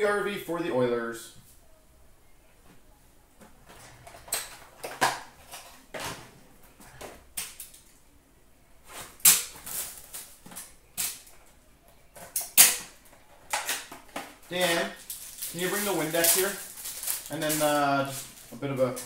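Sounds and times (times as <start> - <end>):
card wrappers rustling and crinkling: 8.8 - 11.4, 12.2 - 19.0.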